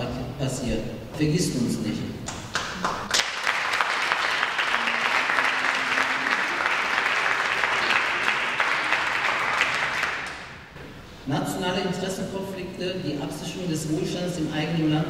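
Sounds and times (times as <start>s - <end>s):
audience applauding: 2.3s - 10.7s.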